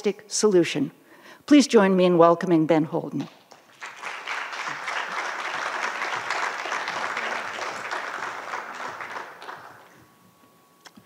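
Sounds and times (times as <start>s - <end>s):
audience applauding: 3.5s - 10.0s.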